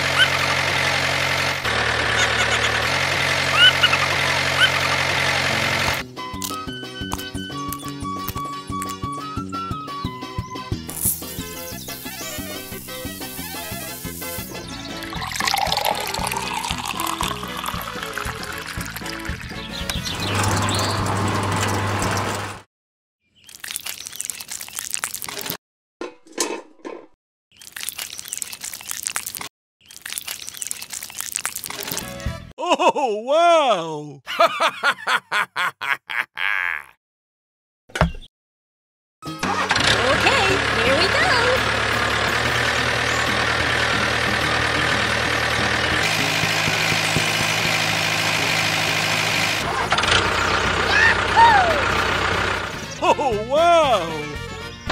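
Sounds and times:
engine idling: 0.0s - 6.0s, 39.4s - 53.1s
concrete mix crunching and scraping: 23.5s - 25.6s, 27.6s - 32.1s.

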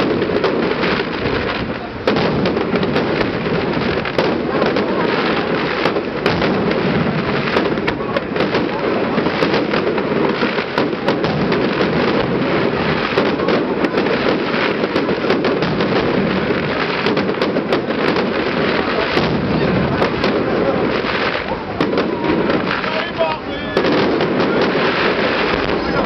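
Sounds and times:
fireworks bangs and pops: 0.0s - 26.0s
fireworks rumble and crackle: 0.0s - 26.0s.

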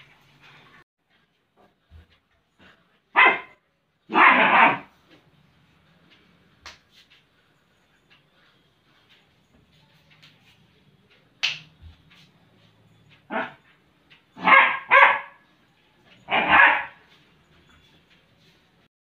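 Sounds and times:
dog barking: 3.1s - 4.9s, 13.3s - 13.6s, 14.4s - 15.4s, 16.3s - 17.0s.

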